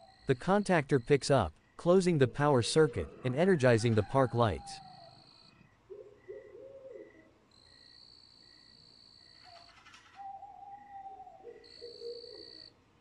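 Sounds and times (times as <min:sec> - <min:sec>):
insect chirping: 0:00.0 - 0:03.3, 0:04.5 - 0:12.7
low hooting calls: 0:02.0 - 0:07.4, 0:09.4 - 0:12.7.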